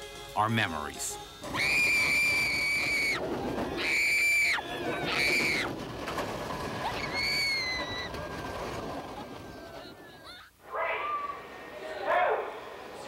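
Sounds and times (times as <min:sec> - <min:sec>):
long high-pitched screams: 0:01.5 - 0:03.2, 0:03.8 - 0:05.7, 0:06.8 - 0:08.1, 0:10.6 - 0:11.8.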